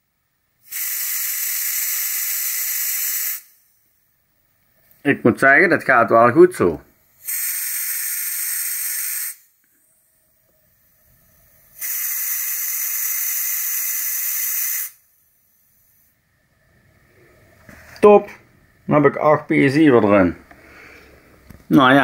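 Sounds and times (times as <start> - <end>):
air hissing from tyre valve: 0.6 - 4.0, 7.0 - 10.1, 10.7 - 16.2.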